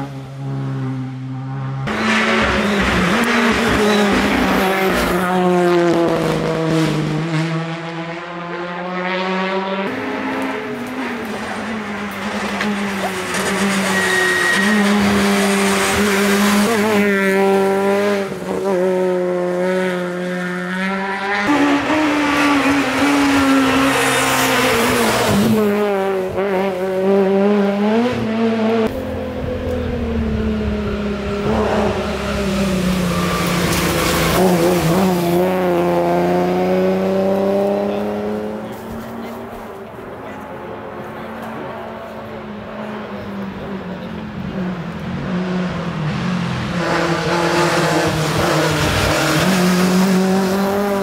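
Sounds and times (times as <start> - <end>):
rally car engines revving hard: 0.0 - 51.0.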